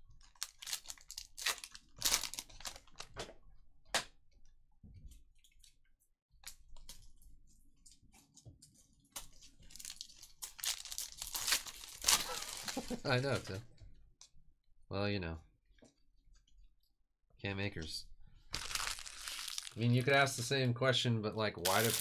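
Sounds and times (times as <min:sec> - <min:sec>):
foil wrappers crinkling and tearing: 0:00.2 - 0:03.1, 0:09.2 - 0:13.5, 0:18.5 - 0:20.2, 0:21.6 - 0:22.0.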